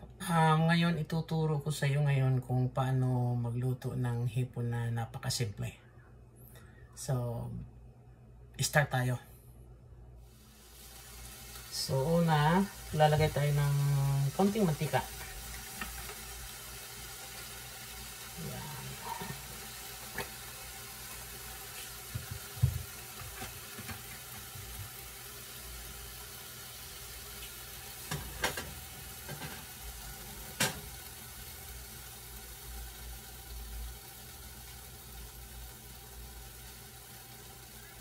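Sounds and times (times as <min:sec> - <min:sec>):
oil hissing in a pan: 0:10.2 - 0:38.0.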